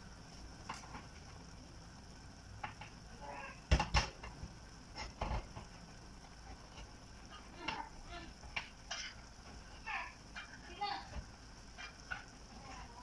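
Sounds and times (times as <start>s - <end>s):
faint steady hiss: 0.0s - 13.0s
sharp knocks and clatters: 3.7s - 5.8s.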